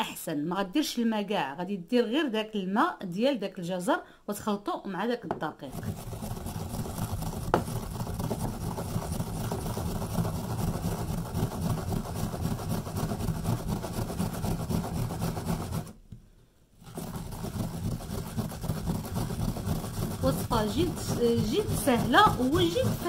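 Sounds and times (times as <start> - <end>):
carrot rasping on metal grater: 5.7 - 16.0, 16.8 - 23.0.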